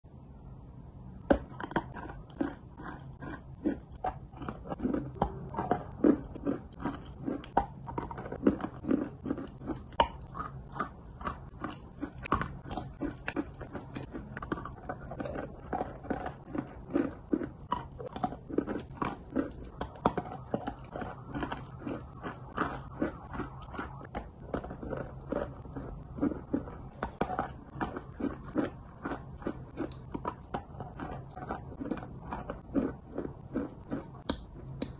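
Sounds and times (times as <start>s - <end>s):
chewing chalk dry crunches: 1.2s - 34.9s.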